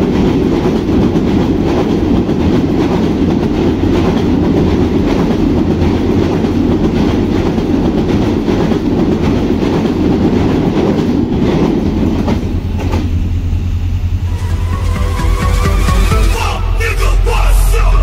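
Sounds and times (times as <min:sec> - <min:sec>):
wheels clickety-clack over rail joints: 0:00.0 - 0:14.1
train rumbling over bridge: 0:00.0 - 0:18.0.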